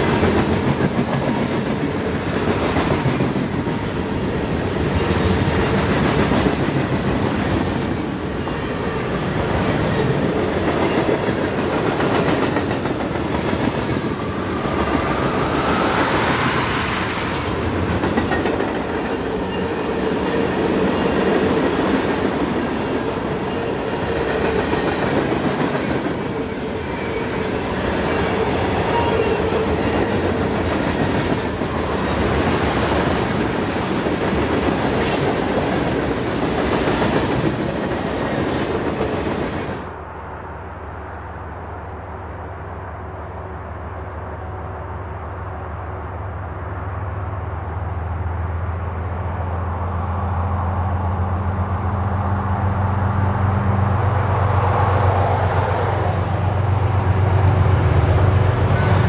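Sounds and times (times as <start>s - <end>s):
clickety-clack over rail joints: 0.0s - 39.9s
train wheels rumbling on rails: 0.0s - 40.0s, 46.8s - 59.0s.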